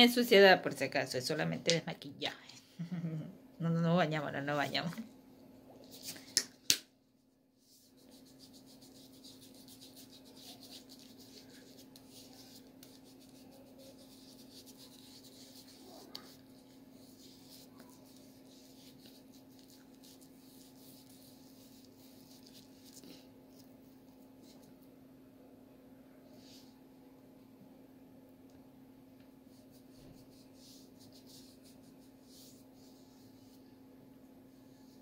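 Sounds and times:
steady low hum: 0.0s - 6.4s
cotton pad rubbing skin: 7.6s - 23.7s, 29.5s - 33.6s.

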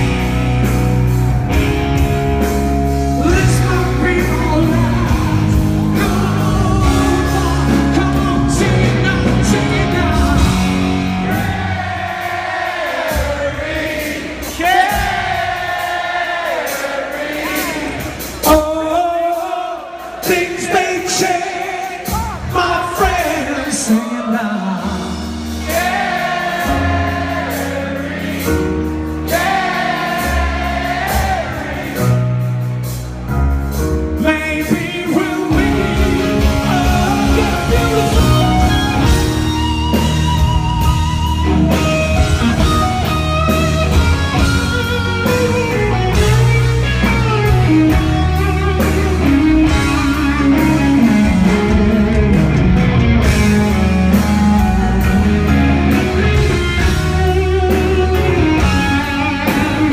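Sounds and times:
bass and drums: 0.0s - 24.1s, 24.8s - 59.9s
keyboards: 0.0s - 59.9s
man singing long notes: 3.2s - 10.9s, 34.2s - 39.2s
electric guitar: 35.5s - 59.9s.

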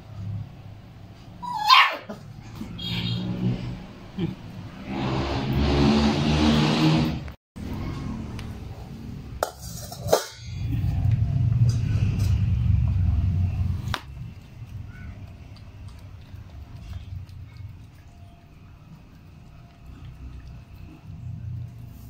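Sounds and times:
metal bowl clinking on floor: 9.4s - 10.7s.

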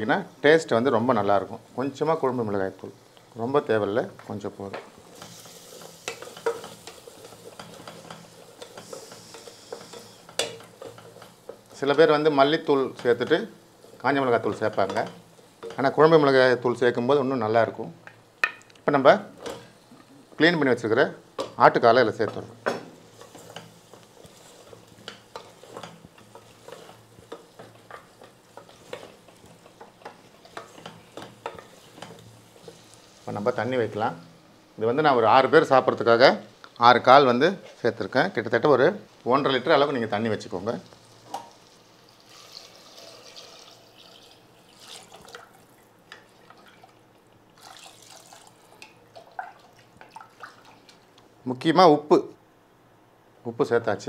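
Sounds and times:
light sizzle: 0.0s - 54.0s
spatula scraping and knocking pot: 4.7s - 12.1s, 21.4s - 32.8s
water pouring into a pot: 42.1s - 47.0s, 47.6s - 51.0s.

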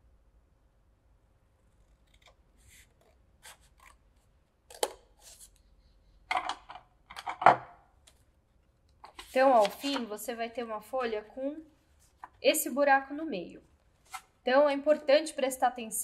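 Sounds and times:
scissors snipping paper: 1.8s - 4.0s.

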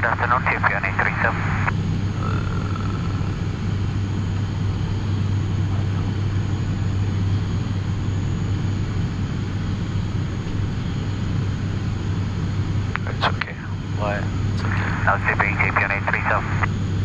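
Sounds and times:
turboprop engines deep hum: 0.0s - 17.0s.

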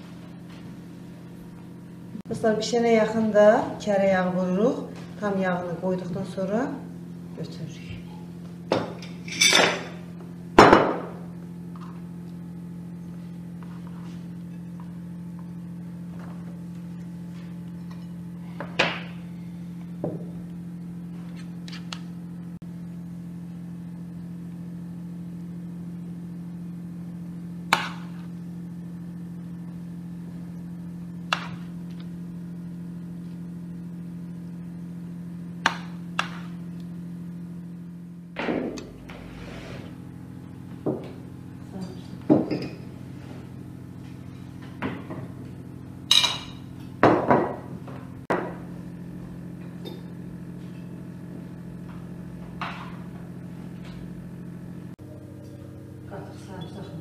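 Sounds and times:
kitchenware knocks and clinks: 8.7s - 9.9s, 42.3s - 42.9s
kitchenware clatter: 8.8s - 10.0s, 41.8s - 42.9s, 46.1s - 47.6s.

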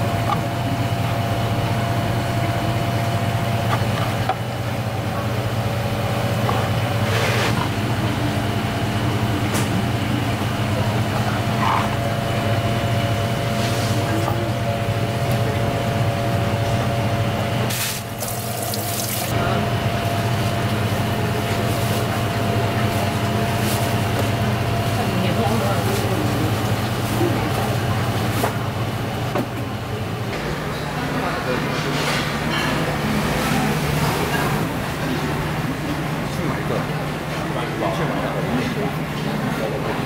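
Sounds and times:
low machine hum: 0.0s - 40.0s
water running from a tap: 17.8s - 19.3s.

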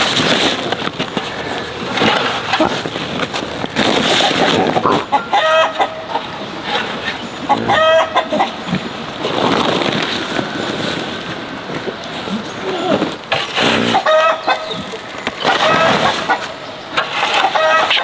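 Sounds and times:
chickens calling: 0.0s - 18.0s
metal scoop scraping dirt: 13.3s - 18.0s.

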